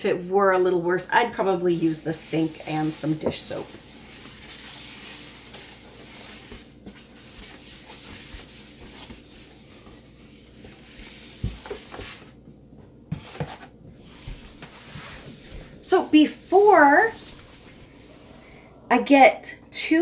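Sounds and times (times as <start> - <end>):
cloth scrubbing plastic bin: 1.4 - 12.4, 13.1 - 17.9.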